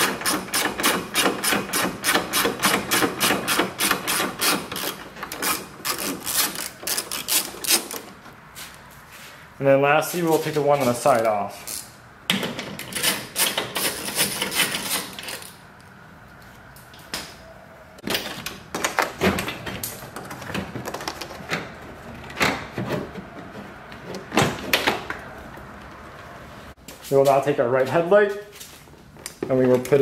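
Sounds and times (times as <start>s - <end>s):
knocks and plastic rattles: 18.0s - 26.0s.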